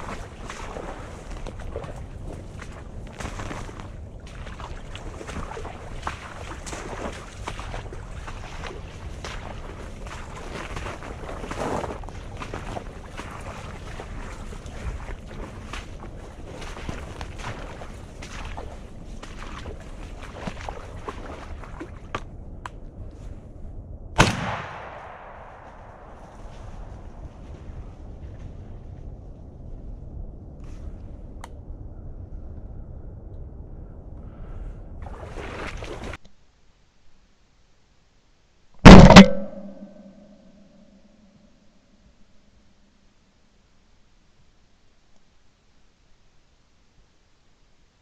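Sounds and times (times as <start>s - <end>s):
footsteps through wet brush: 0.0s - 23.6s, 24.2s - 29.1s
faint hum: 0.0s - 35.4s
shotgun shot with echo: 24.2s - 26.1s, 38.8s - 40.3s.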